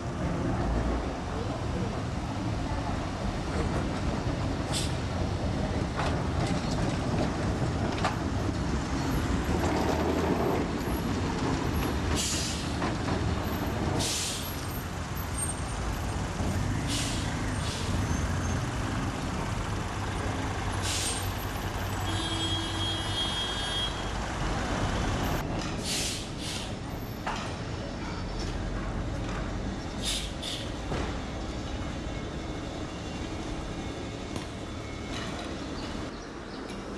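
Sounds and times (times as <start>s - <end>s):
tram rumbling along track: 0.0s - 36.9s
short hisses: 25.8s - 26.8s, 30.0s - 30.8s.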